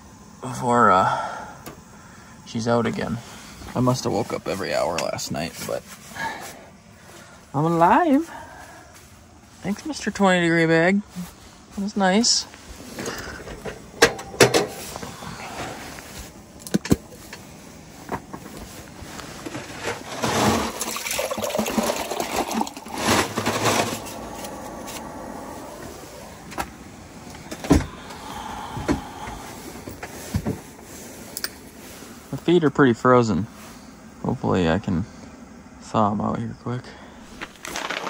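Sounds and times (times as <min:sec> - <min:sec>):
camp gear knocks and clicks: 0:12.9 - 0:20.7, 0:37.4 - 0:38.0
water poured into a cup: 0:20.7 - 0:23.0.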